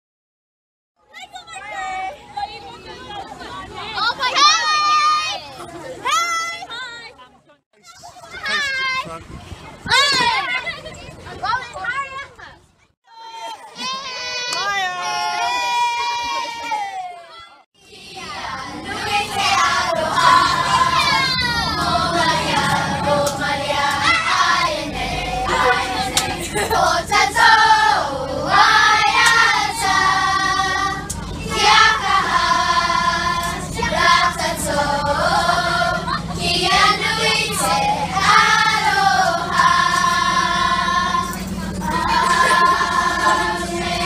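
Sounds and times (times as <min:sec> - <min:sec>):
girls singing in unison: 0:17.8 - 0:44.0.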